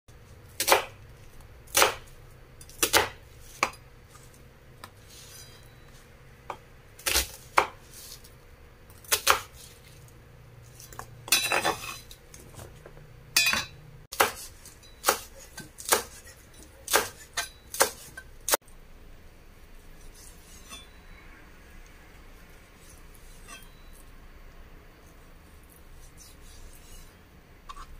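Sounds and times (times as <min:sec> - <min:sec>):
knife cutting onion on board: 0:00.6 - 0:01.0, 0:01.7 - 0:05.4, 0:06.5 - 0:08.3, 0:08.9 - 0:09.8, 0:14.1 - 0:18.3
knife scraping cutting board: 0:02.6 - 0:06.0, 0:07.1 - 0:08.3, 0:10.6 - 0:12.8, 0:14.2 - 0:18.3, 0:20.0 - 0:21.0, 0:22.8 - 0:24.0, 0:25.7 - 0:27.9.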